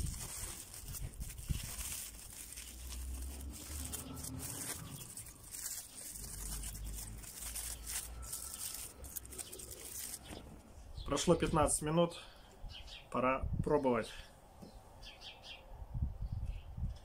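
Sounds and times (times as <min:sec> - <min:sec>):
aluminium foil crinkling and tearing: 0:00.0 - 0:10.6.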